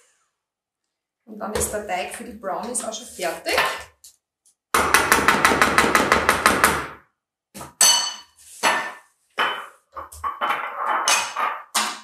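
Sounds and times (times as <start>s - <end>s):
clinks and knocks: 7.8s - 12.0s.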